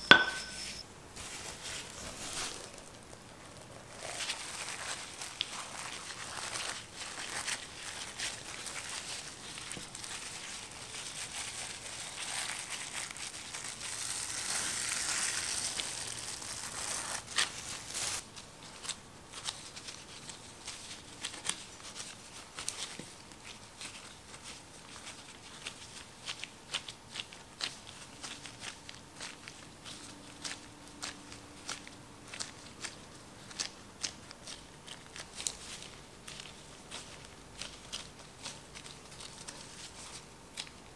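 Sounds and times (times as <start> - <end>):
cling film crinkling: 1.2 - 40.9.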